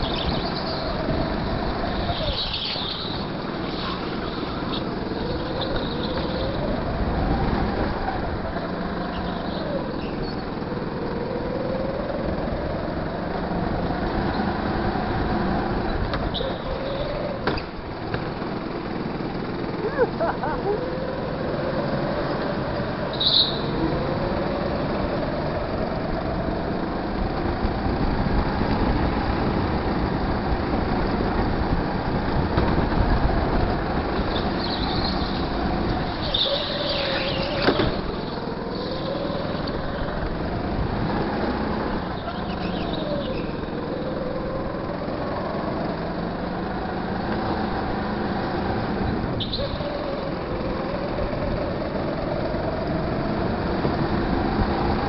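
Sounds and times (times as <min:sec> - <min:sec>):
go-kart engine revving: 0:00.0 - 0:55.0
tyre squeals: 0:01.8 - 0:06.8, 0:23.0 - 0:23.9, 0:34.3 - 0:40.1, 0:42.1 - 0:43.8, 0:49.3 - 0:50.5.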